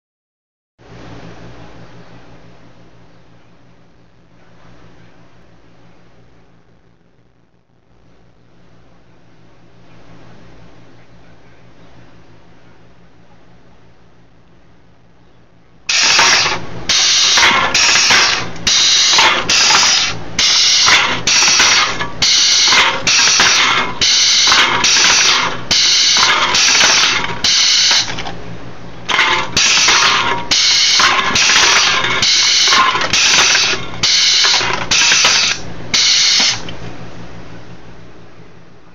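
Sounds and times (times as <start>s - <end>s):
pneumatic hissing bursts: 15.9s - 28.2s, 29.1s - 36.7s.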